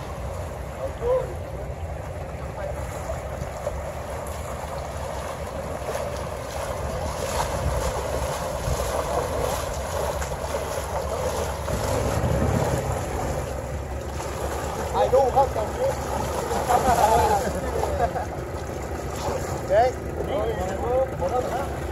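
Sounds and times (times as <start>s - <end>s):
people wading through water: 0.0s - 21.9s
water splashing and sloshing: 0.0s - 21.9s
wind rumbling on microphone: 3.3s - 14.9s.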